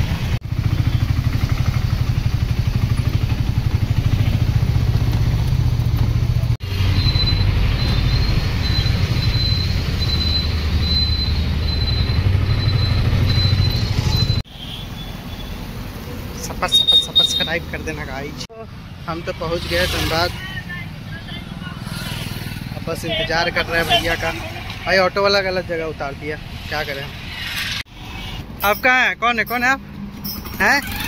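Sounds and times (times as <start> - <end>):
auto-rickshaw engine chugging: 0.0 - 15.6, 28.8 - 31.0
street traffic: 0.0 - 31.0.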